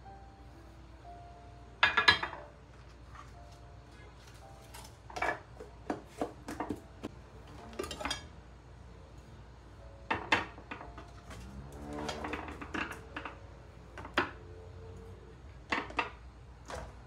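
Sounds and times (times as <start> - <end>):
glass dishes clinking and knocking: 1.8 - 2.6, 5.1 - 6.8, 7.6 - 8.4, 10.1 - 11.1.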